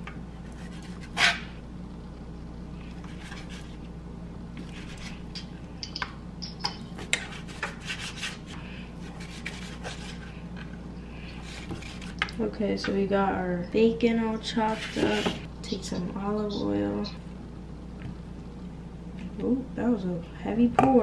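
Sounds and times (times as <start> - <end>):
low hum: 0.0 - 20.6
knife cutting on cutting board: 0.5 - 1.5.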